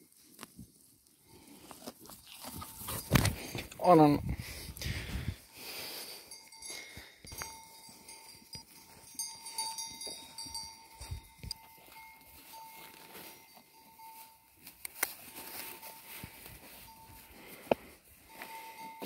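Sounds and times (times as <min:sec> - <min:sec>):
bell ringing: 0:06.2 - 0:14.6, 0:18.3 - 0:19.0.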